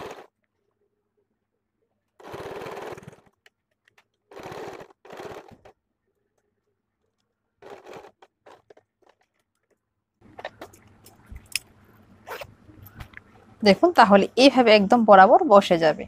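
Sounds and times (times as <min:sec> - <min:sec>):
sewing machine stitching: 0:00.0 - 0:00.4, 0:02.2 - 0:05.8, 0:07.6 - 0:09.7.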